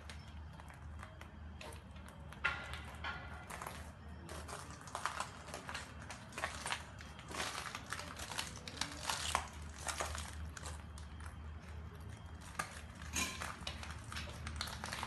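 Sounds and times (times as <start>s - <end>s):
footsteps crunching on debris: 0.0s - 15.0s
low steady hum: 0.0s - 15.0s.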